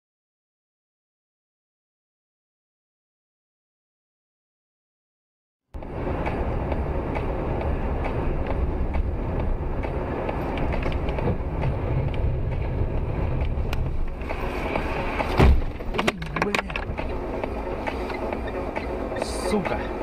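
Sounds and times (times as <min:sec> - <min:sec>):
car cabin road and engine noise: 0:05.8 - 0:20.0
loud thump: 0:15.3 - 0:16.5.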